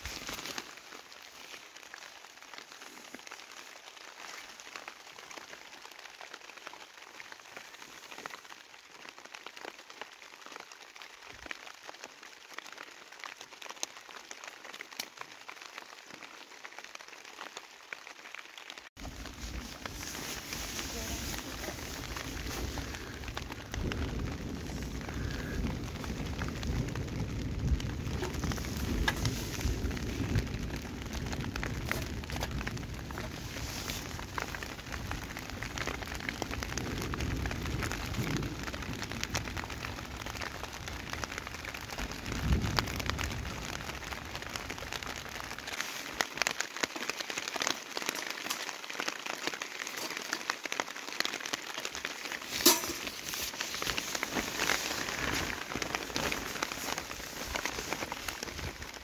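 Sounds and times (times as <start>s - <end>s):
rain on tent fabric: 0.0s - 59.0s.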